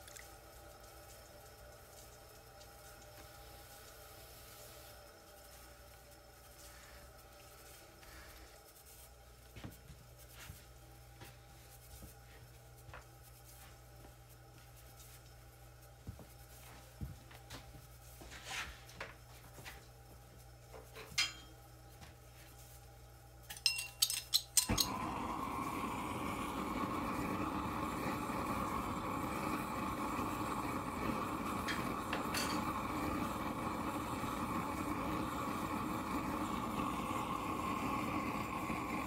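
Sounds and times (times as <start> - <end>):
gas torch hissing: 24.6 - 39.0
potter's wheel motor humming: 24.7 - 39.0.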